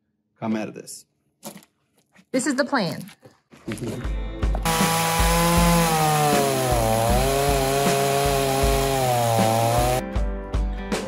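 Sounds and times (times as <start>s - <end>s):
chainsaw cutting log: 4.6s - 10.0s.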